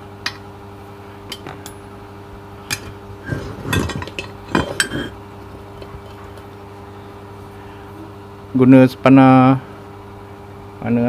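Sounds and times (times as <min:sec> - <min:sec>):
metal tool parts clinking: 0:02.7 - 0:05.2.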